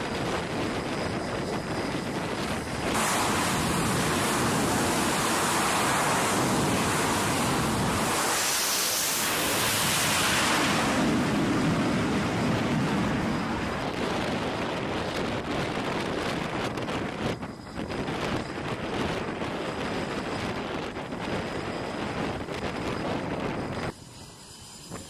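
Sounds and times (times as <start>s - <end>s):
catapult steam venting: 0.0s - 17.1s
jet engine roar: 0.0s - 25.0s
wind on microphone: 0.0s - 25.0s.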